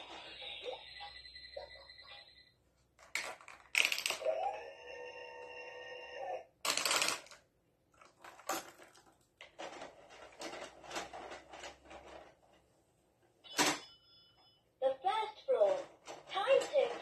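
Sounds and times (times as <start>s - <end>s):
plastic toy parts clattering: 3.0s - 4.3s, 6.6s - 12.6s, 15.6s - 17.0s.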